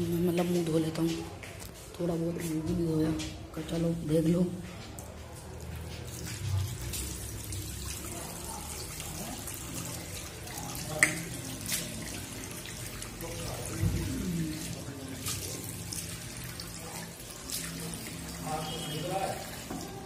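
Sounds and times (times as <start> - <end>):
tap water running into basin: 5.0 - 20.0
hands splashing water: 10.4 - 13.0.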